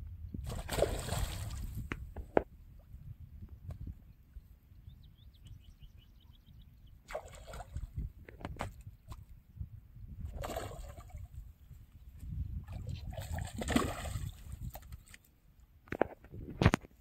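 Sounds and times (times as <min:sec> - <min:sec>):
fish splashing in water: 0:00.5 - 0:01.7, 0:07.1 - 0:07.9.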